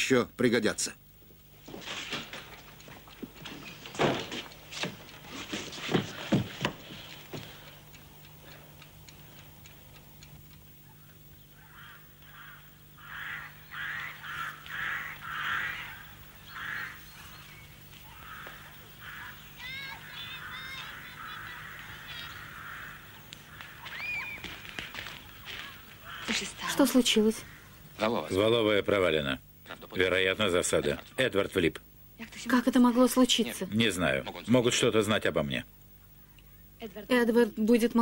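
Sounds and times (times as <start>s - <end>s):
sharp knocks and thuds: 1.6s - 7.5s
bird calls: 2.2s - 28.1s
geese honking: 2.2s - 28.2s.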